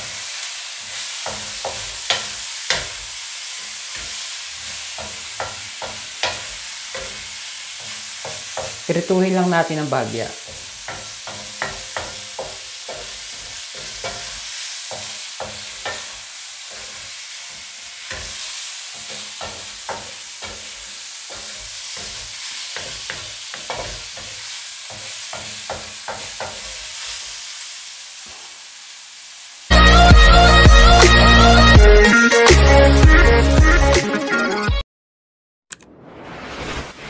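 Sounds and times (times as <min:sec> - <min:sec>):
wooden spatula scraping wok: 0:00.0 - 0:28.7
food sizzling in oil: 0:00.0 - 0:32.7.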